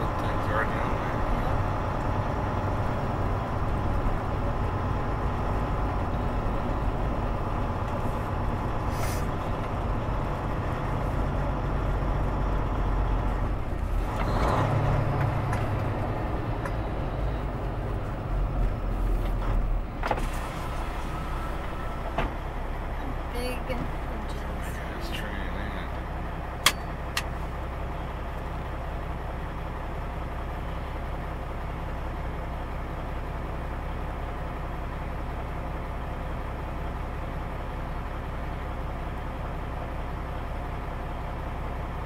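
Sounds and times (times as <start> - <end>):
truck engine running: 0.0 - 42.0
tyre noise on wet road: 17.6 - 23.0.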